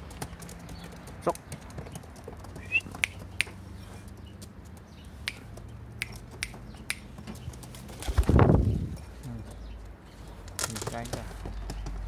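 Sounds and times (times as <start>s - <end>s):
pigeons pecking clicks: 0.0s - 8.3s.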